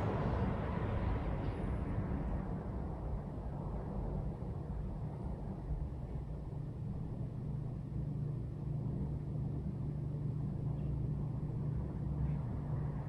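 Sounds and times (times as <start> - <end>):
low background rumble and hum: 0.0 - 13.0.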